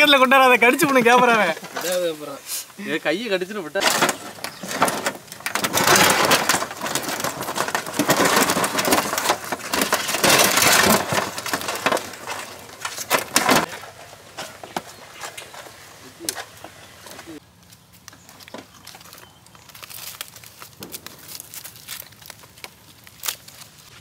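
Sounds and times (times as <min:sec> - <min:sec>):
crab shells clicking and scraping: 0:17.5 - 0:24.0.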